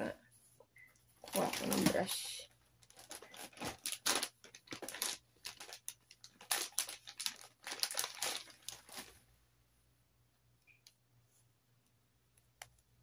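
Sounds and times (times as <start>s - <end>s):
makeup items rustling and clattering: 1.2s - 9.2s.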